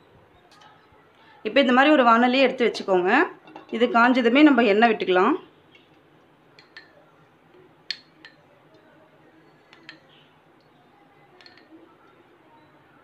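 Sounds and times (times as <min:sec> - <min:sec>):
spoon clinking glass bowl: 0:06.6 - 0:07.0, 0:07.9 - 0:08.4, 0:09.5 - 0:11.8.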